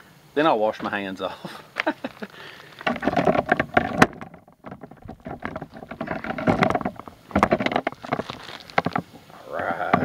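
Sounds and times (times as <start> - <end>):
camera handling rustling and knocks: 2.8 - 9.2.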